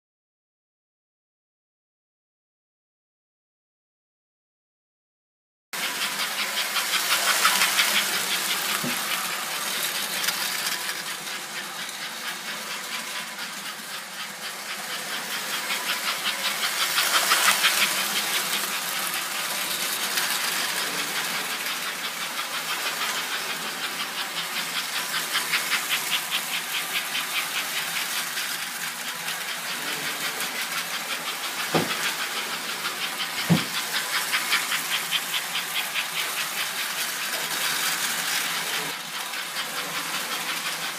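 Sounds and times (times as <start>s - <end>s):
toy train clattering on track: 5.8s - 40.9s
sharp knocks: 31.7s - 32.0s, 33.4s - 33.7s.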